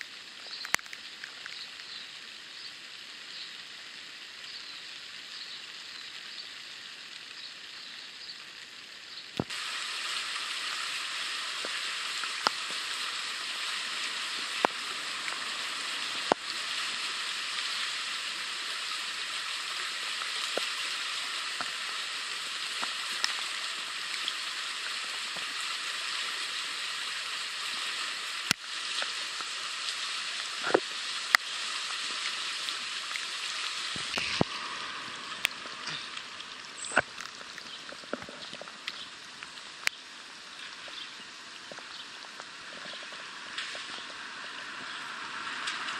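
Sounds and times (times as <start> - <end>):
rain on a plastic tarp: 0.0 - 45.9
creek running fast: 9.4 - 37.9.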